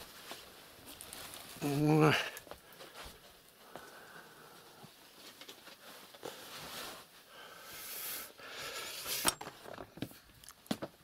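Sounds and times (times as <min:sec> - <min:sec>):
rustling handling noise: 0:00.0 - 0:03.7, 0:04.8 - 0:07.3.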